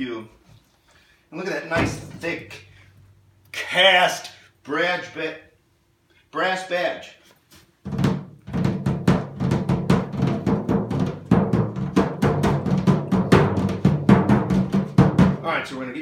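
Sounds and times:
tom drum tapped by hand: 7.9s - 15.4s.

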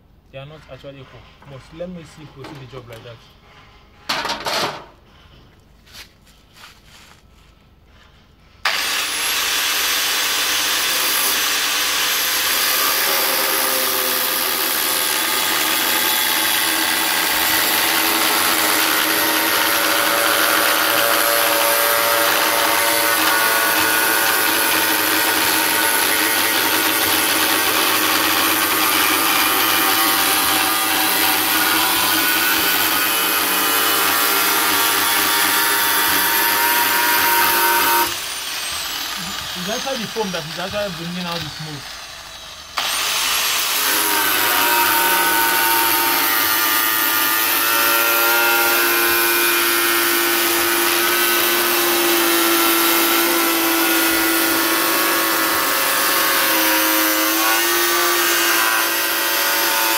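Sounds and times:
angle grinder cutting sheet metal: 8.7s - 59.9s.

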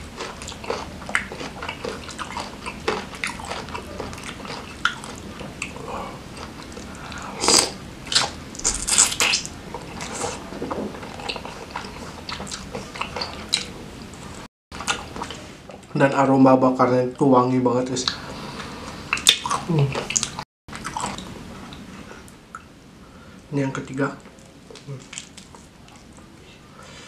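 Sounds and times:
loud bites and crunches: 7.4s - 9.5s.

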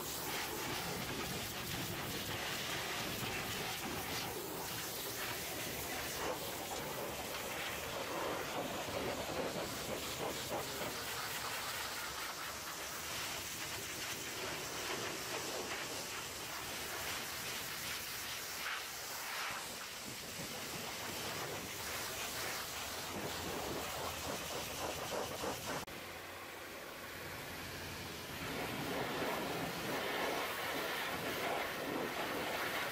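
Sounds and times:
pressure washer spraying metal: 0.0s - 25.9s.

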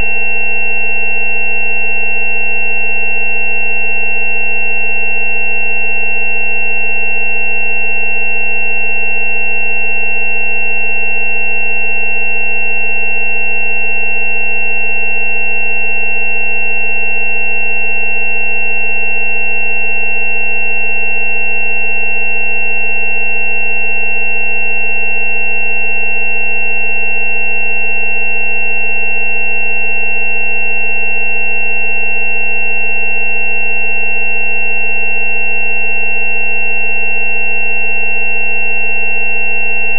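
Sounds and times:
thin high whistle-like tone: 32.4s - 39.9s.

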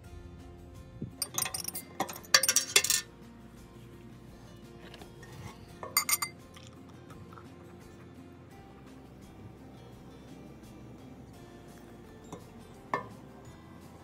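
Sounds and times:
acoustic guitar music: 1.0s - 14.0s
glass bottle clinking on table: 5.8s - 6.4s.

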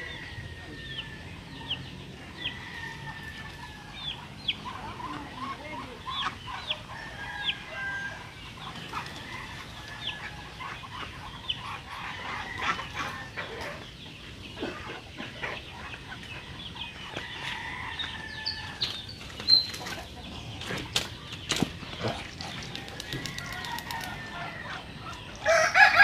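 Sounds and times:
poultry clucking and chirping: 0.0s - 26.0s
wings flapping: 20.7s - 24.4s.

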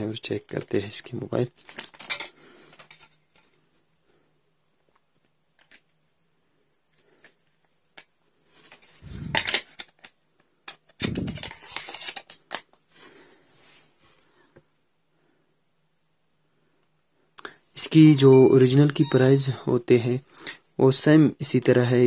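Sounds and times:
rubbing and clicking of phone: 4.8s - 6.0s, 6.9s - 13.0s.

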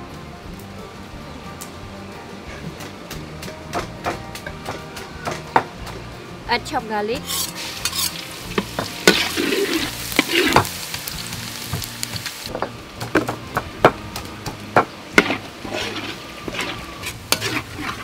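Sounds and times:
garlic sizzling in a wok: 2.8s - 18.0s
ladle stirring in a wok: 7.2s - 12.3s, 15.2s - 18.0s.

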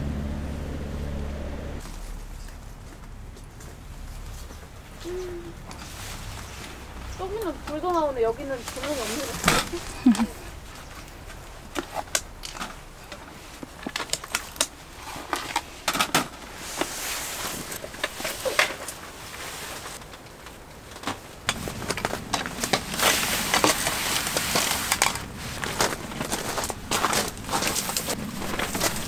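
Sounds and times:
campfire crackling and popping: 20.0s - 29.0s.

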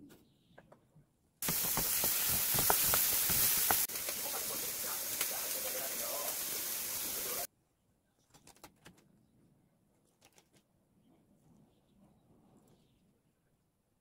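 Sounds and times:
food sizzling in a frying pan: 1.4s - 7.5s.

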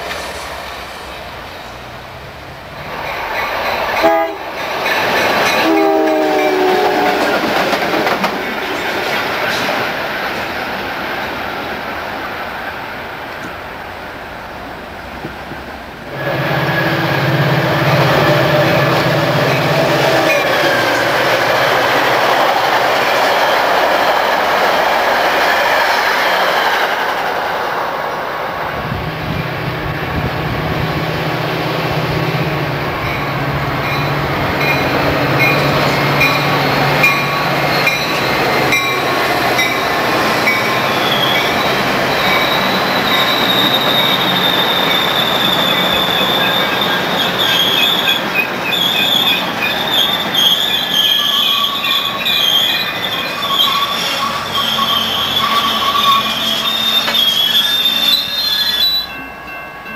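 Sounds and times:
diesel locomotive drone: 0.0s - 50.4s, 51.0s - 59.9s
train cars rumbling and clattering: 0.0s - 59.9s
high wavering wheel squeal: 33.9s - 59.2s.

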